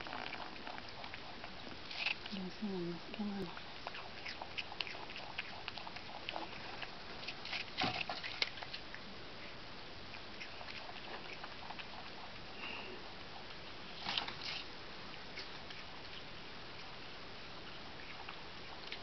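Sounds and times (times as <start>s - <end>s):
possum chewing fruit: 0.0s - 19.0s.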